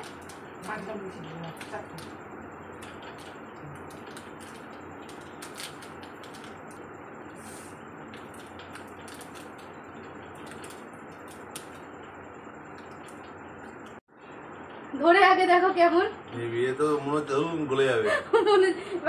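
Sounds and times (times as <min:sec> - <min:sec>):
sweet wrapper crinkling: 0:00.0 - 0:06.9, 0:08.0 - 0:12.1, 0:12.7 - 0:14.0
steady background noise: 0:00.0 - 0:19.0.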